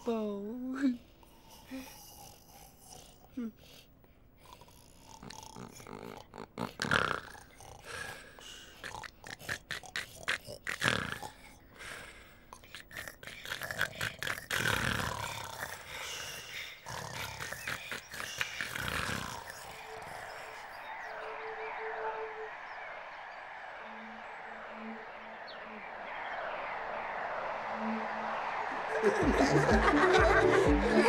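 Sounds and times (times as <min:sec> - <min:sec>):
low falling snore: 0:01.2 - 0:03.6, 0:04.4 - 0:31.0
grunting: 0:04.4 - 0:11.6, 0:12.5 - 0:21.0.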